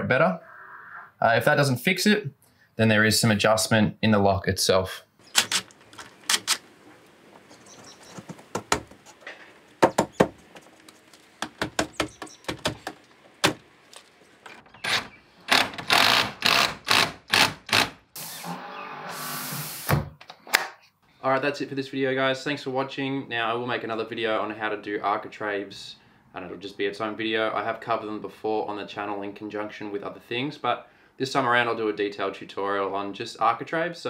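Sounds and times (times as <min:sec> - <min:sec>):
scattered clicks and knocks: 0:08.1 - 0:17.9
cordless drill driving screws: 0:14.8 - 0:19.9.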